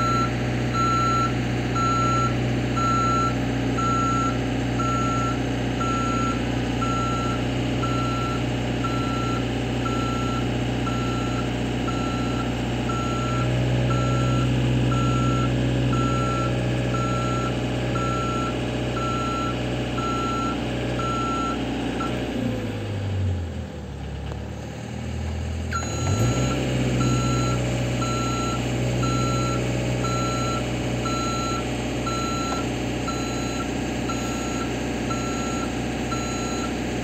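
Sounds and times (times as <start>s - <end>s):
motion alarm beeping: 0.0s - 22.1s, 25.8s - 36.7s
low engine hum: 0.0s - 37.0s.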